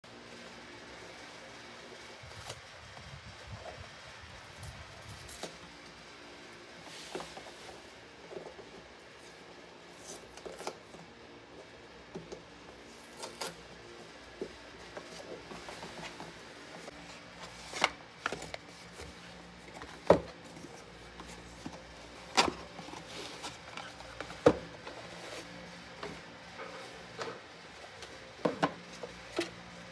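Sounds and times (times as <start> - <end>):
cardboard flaps rustling and scraping: 6.8 - 29.9.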